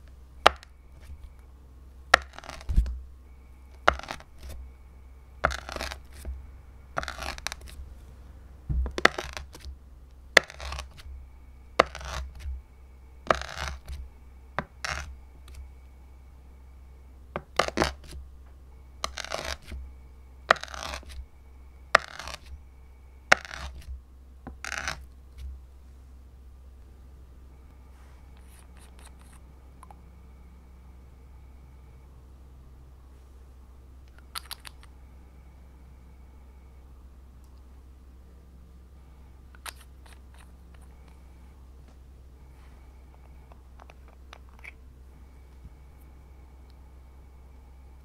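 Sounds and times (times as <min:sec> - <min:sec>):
plastic scraper pressing into slime: 0:02.2 - 0:03.0, 0:05.4 - 0:06.3, 0:08.8 - 0:09.7, 0:10.4 - 0:11.0, 0:11.8 - 0:12.5, 0:13.3 - 0:14.0, 0:14.6 - 0:15.1.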